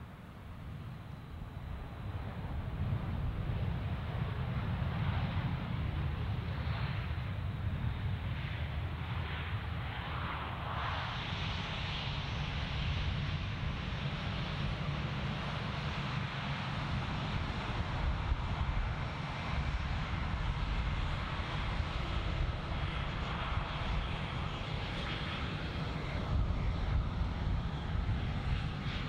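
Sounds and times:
jet engines taxiing: 0.0 - 29.0.

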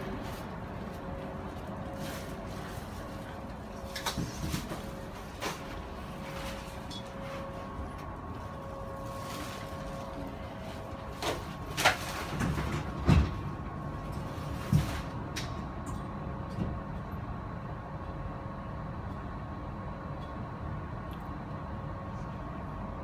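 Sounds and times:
faint whine: 0.0 - 12.3
train carriage hum: 0.0 - 23.0.

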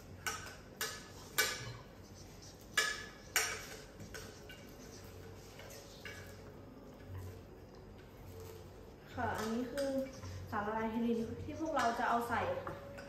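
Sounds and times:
spoon clinking against metal pot: 9.2 - 10.0.

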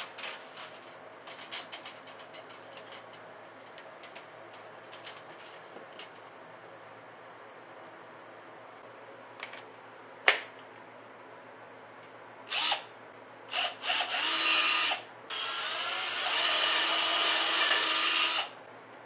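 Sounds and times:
handheld power drill running: 12.5 - 12.8, 13.5 - 18.6.

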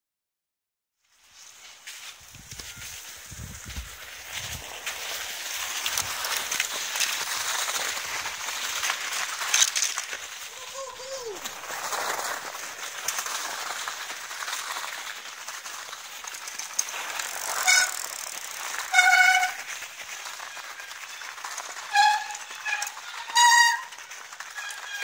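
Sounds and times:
bicycle tyres on snow: 1.0 - 25.0
wind noise: 2.2 - 14.2
short high squeals: 17.5 - 18.1, 18.9 - 19.6.

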